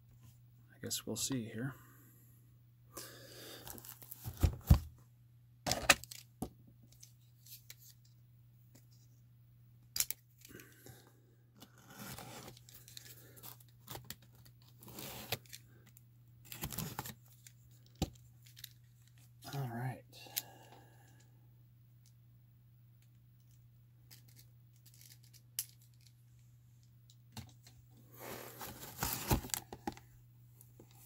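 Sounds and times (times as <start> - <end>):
tape and cardboard tearing: 11.6 - 12.6, 13.8 - 15.5, 16.5 - 17.4.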